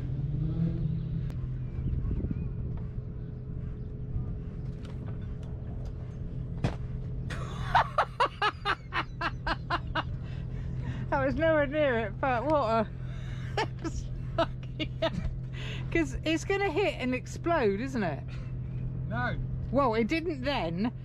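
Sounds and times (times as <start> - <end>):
boat engine humming: 0.0 - 21.0
people laughing: 7.3 - 10.4, 13.3 - 15.3.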